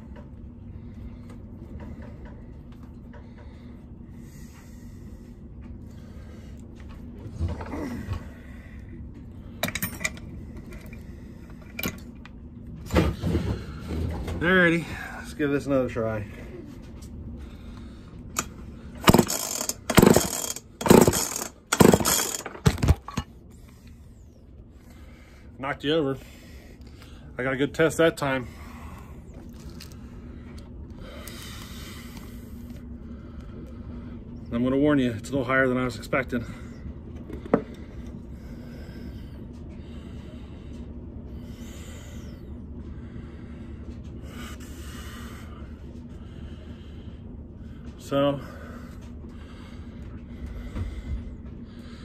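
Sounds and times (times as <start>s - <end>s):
low room hum: 0.0s - 52.0s
chainsaw engine turning over: 19.0s - 23.2s
chainsaw recoil starter pulled: 19.0s - 23.2s.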